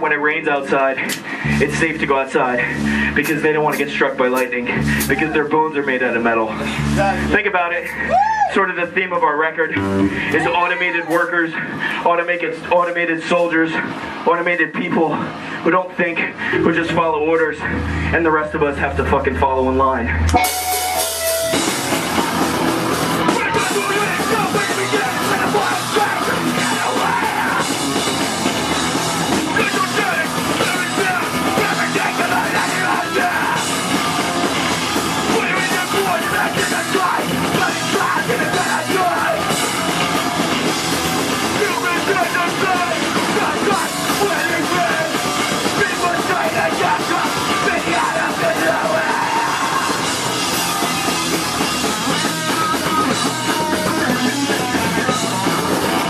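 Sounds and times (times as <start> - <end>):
distorted guitars: 0.0 - 56.0
pounding drum kit: 1.0 - 5.4, 9.8 - 12.0, 20.3 - 56.0
person yelling vocals: 8.0 - 8.6, 9.8 - 11.4, 23.3 - 27.7, 29.6 - 33.7, 35.3 - 39.6, 41.5 - 50.0.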